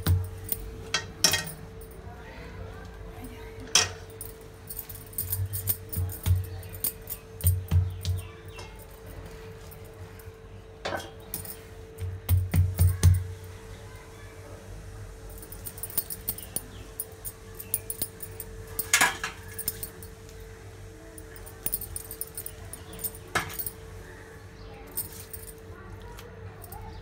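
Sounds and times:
light clinking and tapping: 0.0s - 2.0s, 3.7s - 9.9s, 10.8s - 13.3s, 15.3s - 20.4s, 21.2s - 23.8s, 25.0s - 26.9s
faint steady hum: 0.0s - 27.0s
hands patting and pressing mixture: 7.4s - 8.3s, 12.0s - 13.4s.

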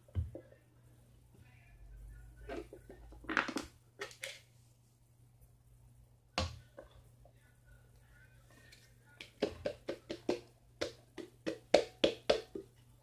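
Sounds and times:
utensil knocking against a bowl: 9.2s - 12.7s.

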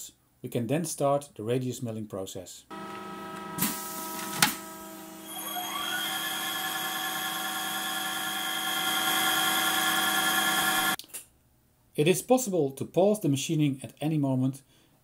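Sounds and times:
spindle whine: 2.7s - 11.0s
steady machine hum: 2.7s - 11.0s.

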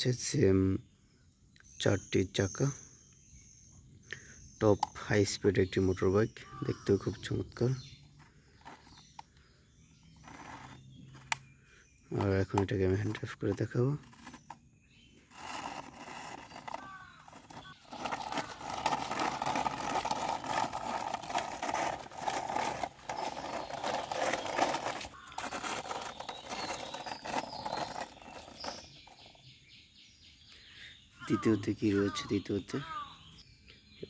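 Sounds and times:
toy wheels rolling on brick: 6.6s - 9.2s, 10.1s - 11.4s, 12.1s - 14.6s, 15.3s - 29.4s.

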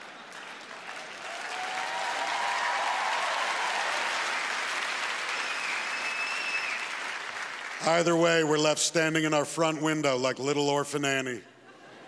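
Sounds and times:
audience applauding: 0.0s - 8.2s.

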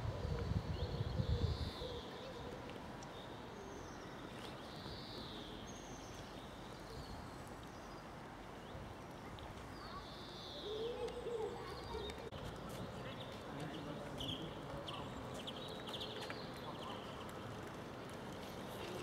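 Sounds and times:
wind rumble on microphone: 0.0s - 2.0s
small birds chirping: 0.2s - 19.0s.

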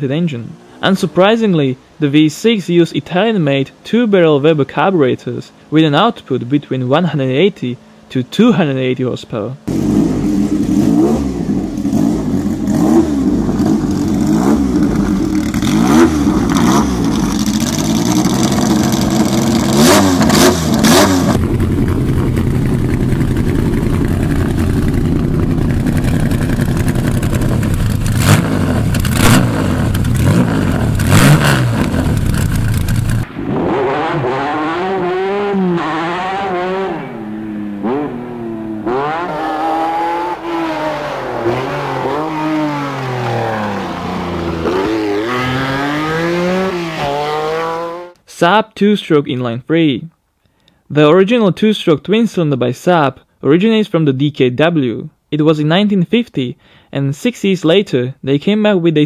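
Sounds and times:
old recording of engine revving: 9.6s - 48.2s
car engine revving: 9.7s - 48.2s.

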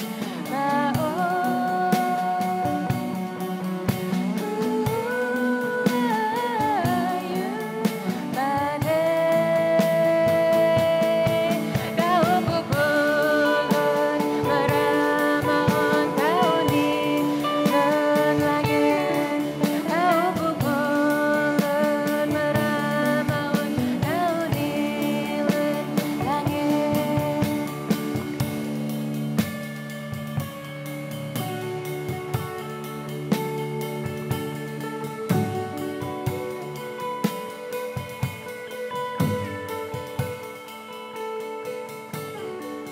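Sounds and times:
woman singing: 0.0s - 28.9s
drums: 0.0s - 42.9s
electric guitar: 0.0s - 42.9s
lute: 0.0s - 42.9s.

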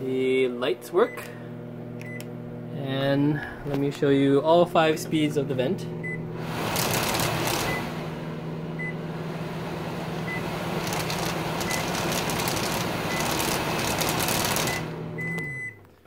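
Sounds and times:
microwave vent fan blowing: 0.0s - 15.7s
microwave hum: 0.0s - 16.0s
control panel beep: 2.0s - 2.3s, 14.6s - 15.8s.

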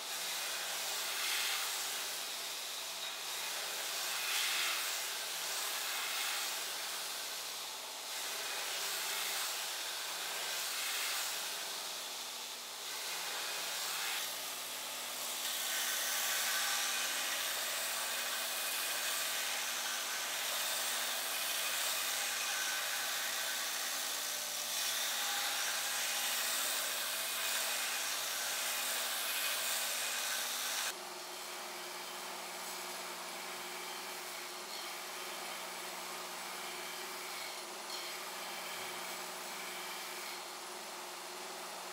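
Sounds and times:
belt grinder grinding steel: 0.0s - 31.0s.

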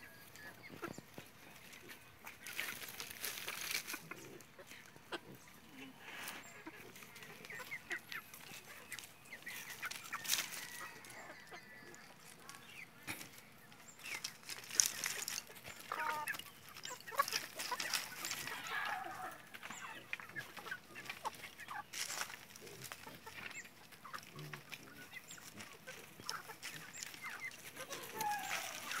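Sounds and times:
chickens clucking: 0.0s - 29.0s
chickens scratching in dry straw: 0.0s - 29.0s.

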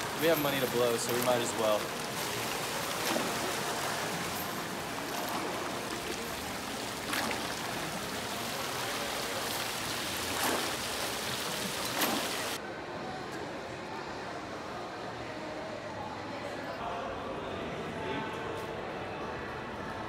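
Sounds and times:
fountain water splashing: 0.0s - 12.6s.

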